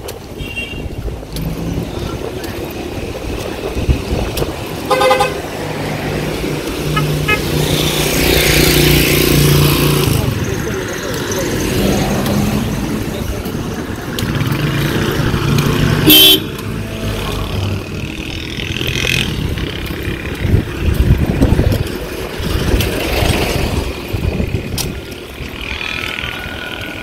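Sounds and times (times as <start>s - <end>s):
road traffic rumbling: 0.0s - 27.0s
vehicle horn blast: 4.9s - 5.5s, 6.9s - 7.6s, 16.0s - 16.6s.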